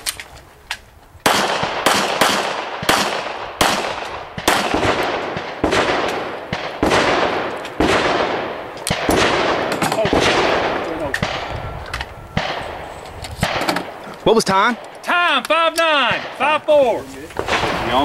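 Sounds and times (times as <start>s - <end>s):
handgun shots echoing: 1.3s - 11.6s.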